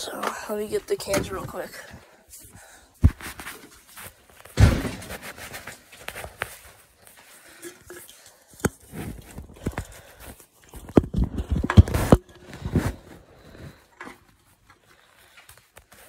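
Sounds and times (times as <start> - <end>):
footsteps: 0.0 - 16.0
rustling: 3.0 - 16.0
heavy thump: 4.6 - 5.2.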